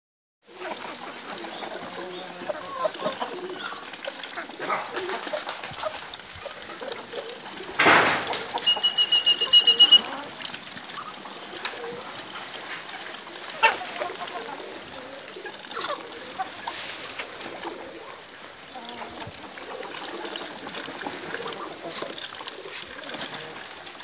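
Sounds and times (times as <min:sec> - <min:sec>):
loud bird call: 0:07.8 - 0:10.2
high pulsing bird call: 0:08.6 - 0:10.2.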